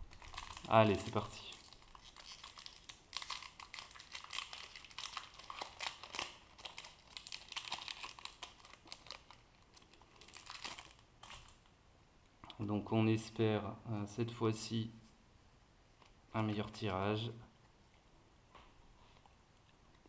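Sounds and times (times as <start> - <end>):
foil wrapper crinkling: 0.0 - 11.6.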